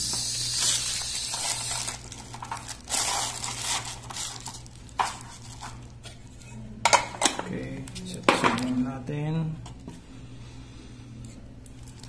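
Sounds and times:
plastic wrapping crinkling: 0.2 - 6.4, 11.6 - 12.0.

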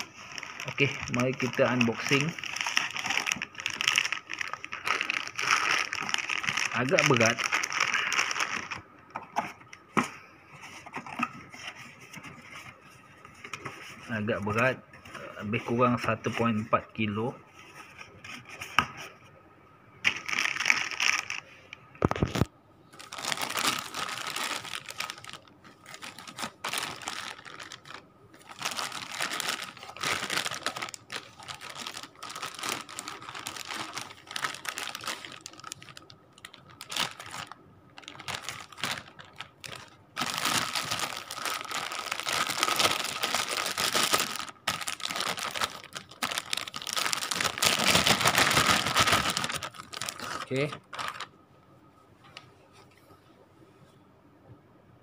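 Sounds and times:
plastic bag crinkling: 0.0 - 8.9, 20.1 - 51.3.

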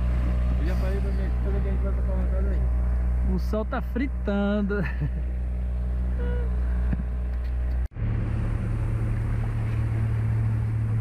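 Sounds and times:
water and wind hiss: 0.0 - 7.3, 8.0 - 11.0
outboard motor droning: 0.0 - 11.0.

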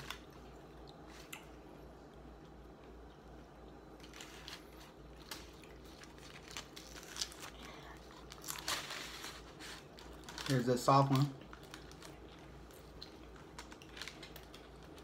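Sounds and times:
paper wrappers crinkling: 0.0 - 0.5, 4.0 - 15.0
crunching of taco being chewed: 0.0 - 15.0.

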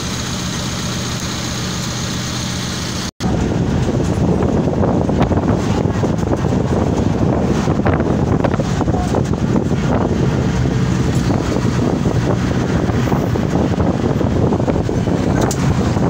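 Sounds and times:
car road noise: 0.0 - 16.0
wind buffeting microphone: 3.2 - 16.0
wind rush: 3.2 - 16.0.

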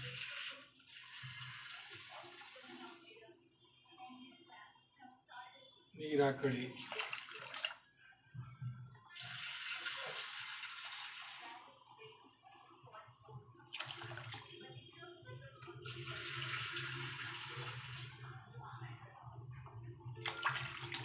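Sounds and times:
water pouring into pan: 0.0 - 3.0, 6.7 - 7.9, 9.1 - 11.8, 15.8 - 18.2, 20.2 - 21.0.

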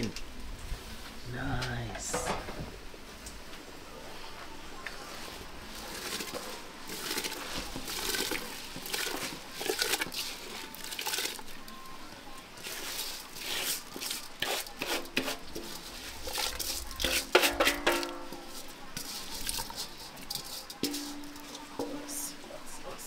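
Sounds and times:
rice grains pouring into pot: 5.1 - 11.6, 12.6 - 17.4
liquid splashing: 5.6 - 11.6.

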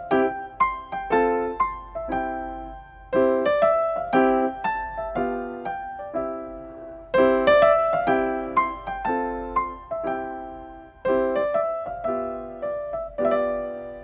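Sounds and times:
piano melody: 0.0 - 14.0.

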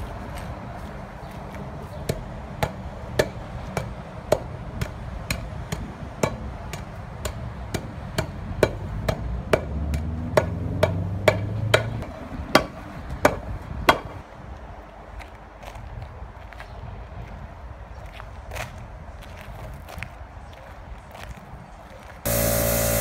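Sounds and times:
hand tamper pounding asphalt: 22.3 - 23.0
low hum: 22.3 - 23.0.

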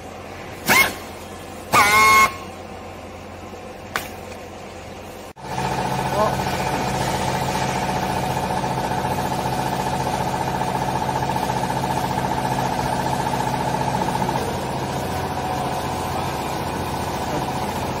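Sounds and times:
hydraulic pump humming and whining: 0.0 - 18.0.

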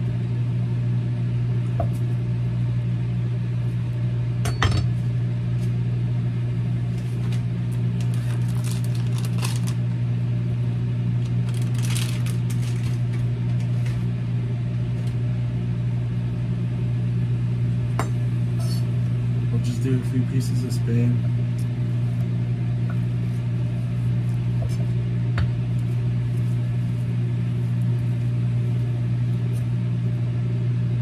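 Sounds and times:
microwave oven humming: 0.0 - 31.0
plastic bag crinkling: 8.0 - 9.9, 11.2 - 13.2.

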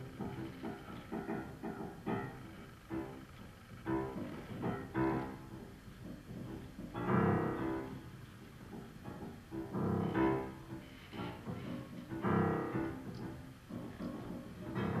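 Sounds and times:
grand piano chords ringing: 0.0 - 15.0
piano strings plucked inside: 0.0 - 15.0.

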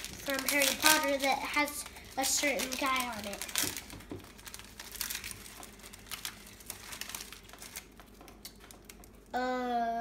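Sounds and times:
candy packaging crinkling: 0.0 - 9.3
child's voice: 0.2 - 3.6, 9.3 - 10.0.

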